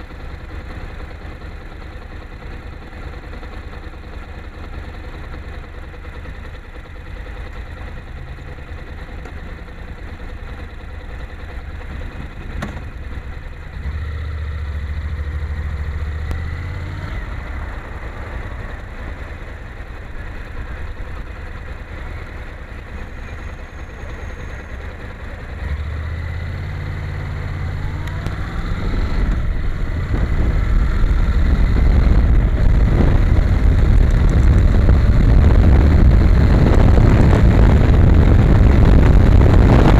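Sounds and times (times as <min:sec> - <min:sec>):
motorcycle engine: 0:00.0 - 0:39.9
wind noise: 0:27.8 - 0:39.9.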